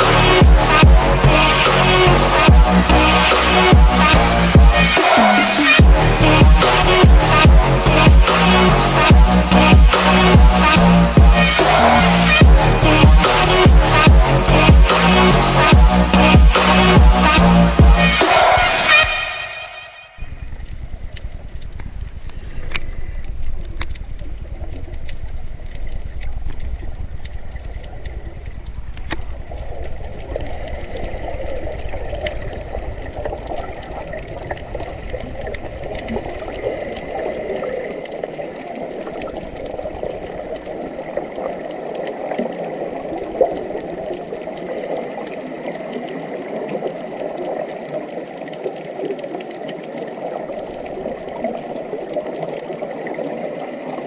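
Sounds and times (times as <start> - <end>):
low rumble: 0.0 - 5.0, 5.8 - 41.9
running water rushing: 0.0 - 54.0
click: 20.6 - 24.3.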